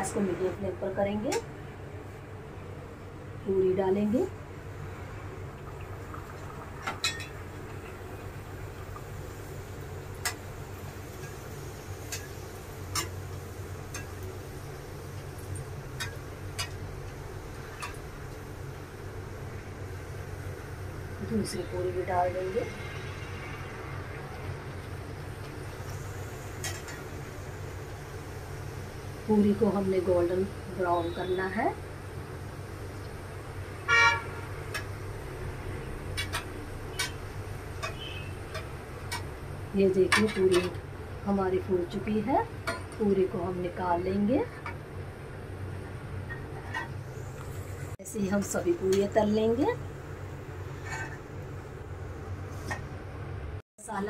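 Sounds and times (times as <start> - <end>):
puri deep-frying in oil: 0.0 - 54.0
vehicle horn toot: 31.0 - 31.5, 33.8 - 34.6, 37.8 - 38.4
metal spoon clicking on pan: 37.8 - 39.3.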